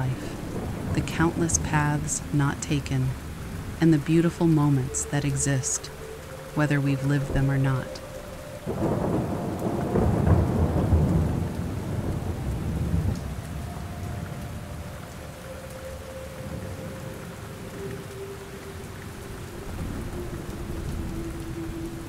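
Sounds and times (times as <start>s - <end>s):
thunder rolling: 0.0s - 3.8s, 7.3s - 14.5s
steady rain: 0.0s - 22.0s.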